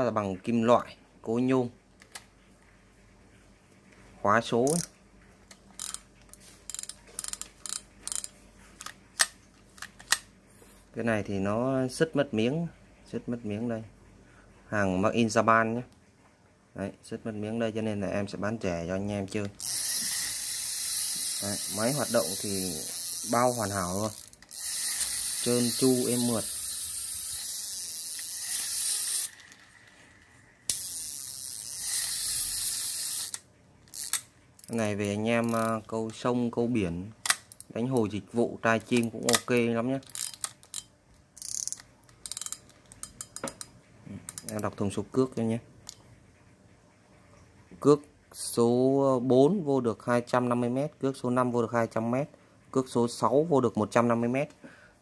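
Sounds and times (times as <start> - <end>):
fishing reel clicking and ratcheting: 4.7 - 4.9, 5.8 - 10.2, 19.3 - 30.0, 30.7 - 36.2, 38.7 - 43.7, 44.3 - 44.8.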